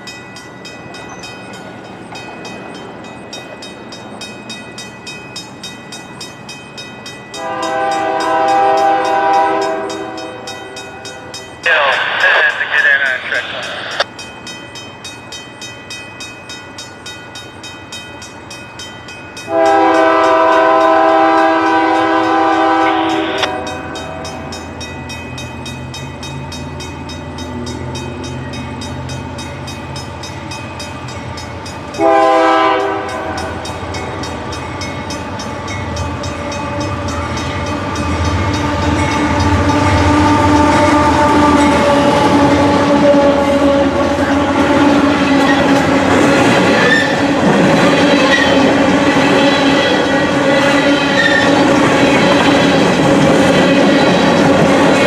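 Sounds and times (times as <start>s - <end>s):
rattle of train cars: 0.0s - 10.9s, 11.5s - 55.0s
locomotive air horn blasts: 7.4s - 10.5s, 19.5s - 24.2s, 32.0s - 33.4s, 39.3s - 44.7s
locomotive engines: 11.5s - 55.0s.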